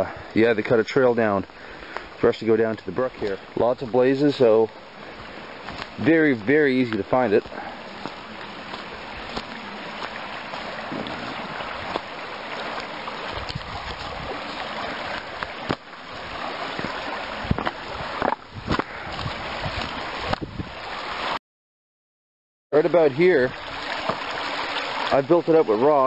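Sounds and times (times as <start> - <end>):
brook water rushing: 0.0 - 21.4, 22.8 - 26.0
footsteps on twigs and dry leaves: 5.6 - 6.0, 6.9 - 15.8.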